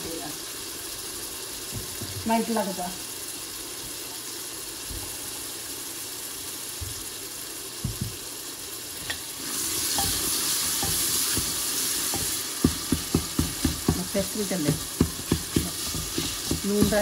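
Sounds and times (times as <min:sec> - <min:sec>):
tomatoes sizzling in oil: 0:00.0 - 0:17.0
wooden spatula knocking pot: 0:09.9 - 0:17.0.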